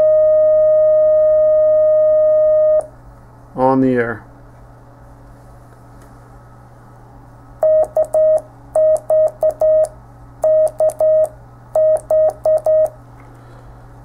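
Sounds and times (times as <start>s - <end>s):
low steady hum: 0.0s - 14.0s
morse code tone: 7.6s - 12.9s.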